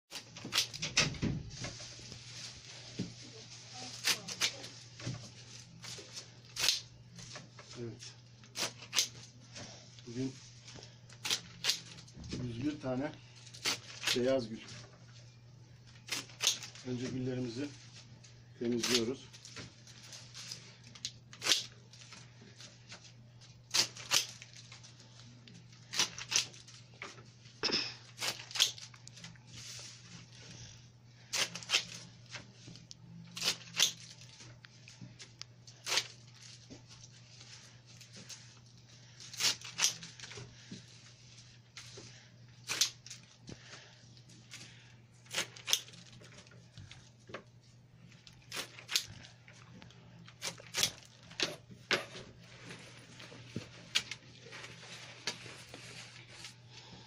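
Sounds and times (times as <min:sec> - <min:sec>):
low steady hum: 0:00.1 - 0:57.0
stems snapping and rustling: 0:16.1 - 0:17.1, 0:33.4 - 0:34.3.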